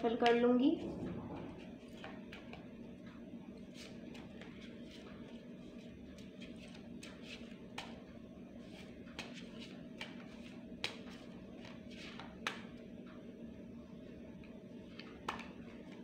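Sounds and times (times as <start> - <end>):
steady low hum: 0.0 - 16.0
cards being shuffled: 8.7 - 12.7.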